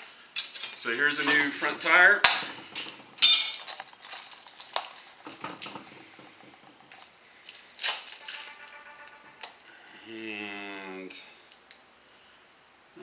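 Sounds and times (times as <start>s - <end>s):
light knocks and clicks: 1.2s - 3.8s, 5.2s - 8.0s.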